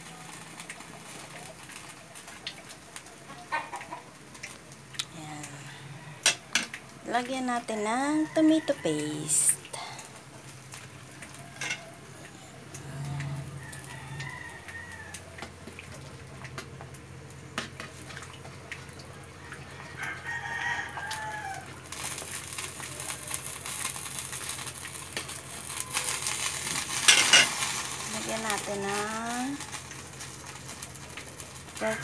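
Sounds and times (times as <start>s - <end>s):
food sizzling: 0.0s - 32.0s
rooster crowing: 11.2s - 15.4s, 19.1s - 21.9s
metal spatula scraping wok: 11.5s - 11.9s, 27.0s - 27.6s.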